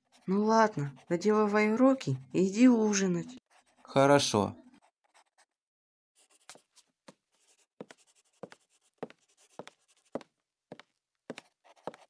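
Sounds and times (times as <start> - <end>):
writing on paper: 0.0 - 5.6, 6.2 - 12.0.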